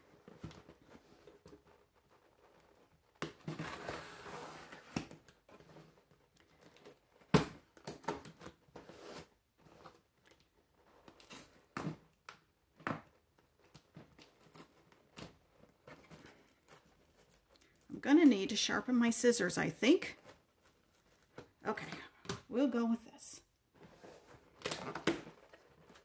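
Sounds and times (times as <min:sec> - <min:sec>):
cardboard rustling: 0:00.0 - 0:17.9, 0:19.9 - 0:22.2, 0:23.7 - 0:26.0
tape tearing: 0:24.2 - 0:26.0.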